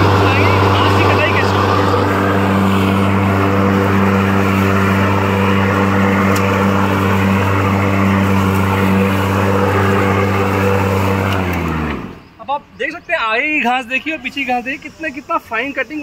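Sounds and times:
electric lawn mower humming: 0:00.0 - 0:12.4.

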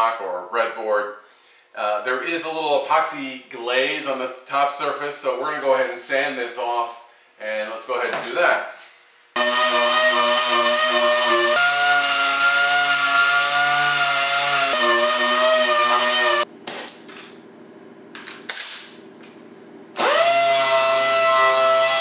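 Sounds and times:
orbital sander sanding wood: 0:09.4 - 0:16.5, 0:20.0 - 0:22.0.

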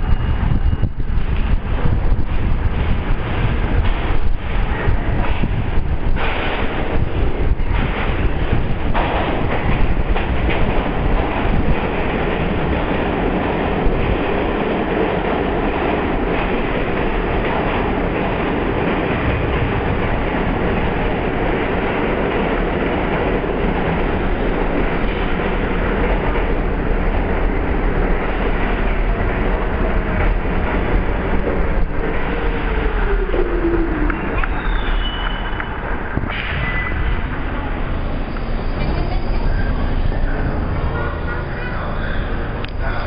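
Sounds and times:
subway train rumbling: 0:00.0 - 0:43.0
train brakes whining: 0:32.6 - 0:42.3.

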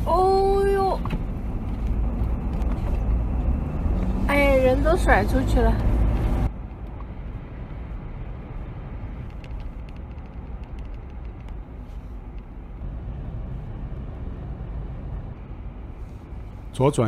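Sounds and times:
car engine and tyre rumble: 0:00.0 - 0:17.0
faint clicks: 0:09.2 - 0:12.5.

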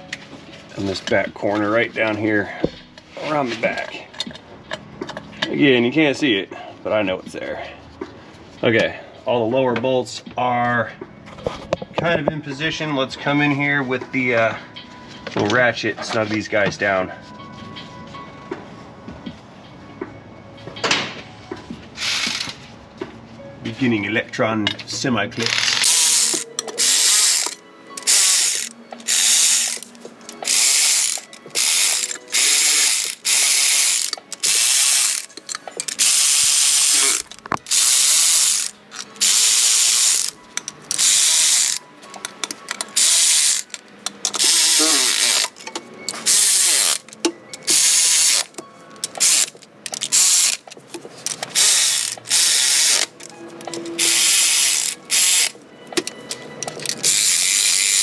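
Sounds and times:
electric ratchet running in bursts: 0:22.0 - 0:22.6, 0:25.5 - 0:41.8, 0:43.0 - 0:45.5, 0:46.2 - 0:50.6, 0:51.4 - 0:53.1, 0:54.0 - 0:55.6, 0:56.8 - 0:58.0.

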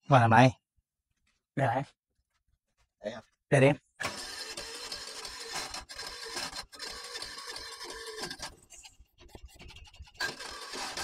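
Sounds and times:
scooter starter cranking: 0:04.0 - 0:08.6, 0:10.2 - 0:11.0.

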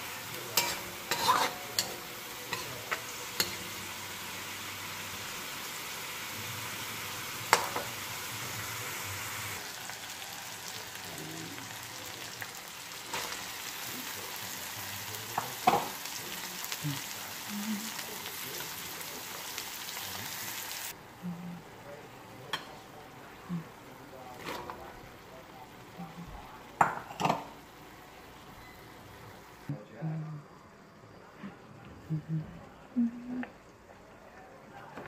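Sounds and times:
meat sizzling in a wok: 0:00.0 - 0:21.0, 0:21.6 - 0:29.7
spatula scraping a pan: 0:00.4 - 0:03.8.

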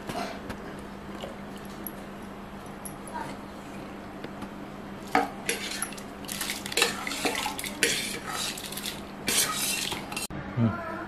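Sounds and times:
boiling water swishing: 0:05.4 - 0:10.3.

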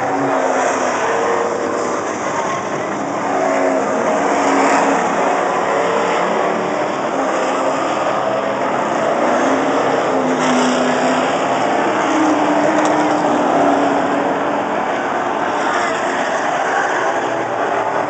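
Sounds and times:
stock car engines racing: 0:00.0 - 0:18.0.

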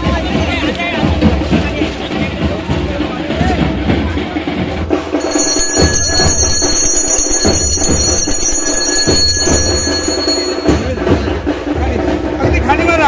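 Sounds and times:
irregular drum beats: 0:00.0 - 0:13.0
bell ringing: 0:05.1 - 0:11.6.

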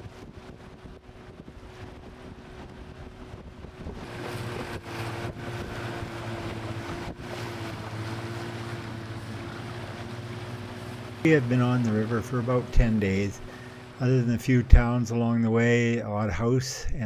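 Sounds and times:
wind on microphone: 0:00.0 - 0:15.0
boat motor running: 0:00.0 - 0:16.6.

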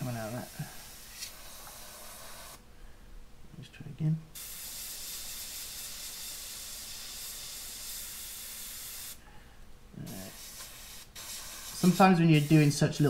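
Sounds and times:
airbrush spraying hiss: 0:00.0 - 0:02.6, 0:04.4 - 0:09.2, 0:10.0 - 0:13.0.

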